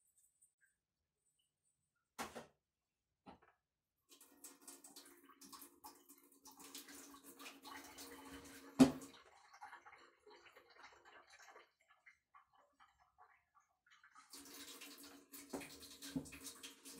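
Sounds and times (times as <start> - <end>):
tap water splashing: 4.4 - 13.0, 14.2 - 16.9.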